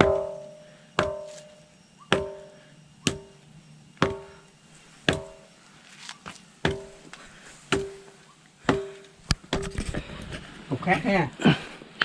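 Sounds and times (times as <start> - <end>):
wooden pole striking ringing rock: 0.0 - 3.4, 4.0 - 4.5, 5.1 - 5.6, 6.6 - 7.1, 7.7 - 8.1, 8.7 - 9.8.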